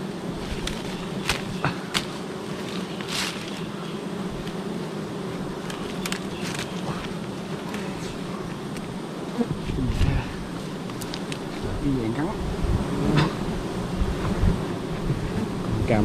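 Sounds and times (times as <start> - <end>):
bees humming: 0.0 - 16.0
clicks and rustles: 0.4 - 3.7, 5.6 - 8.9, 10.8 - 11.6.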